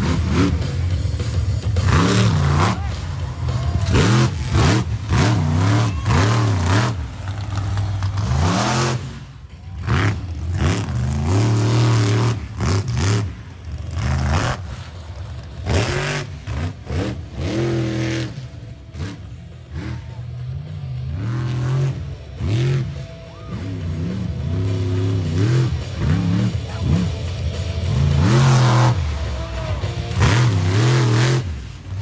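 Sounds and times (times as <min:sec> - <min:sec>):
engine crackles: 0:00.0 - 0:32.0
truck engine revving: 0:00.0 - 0:32.0.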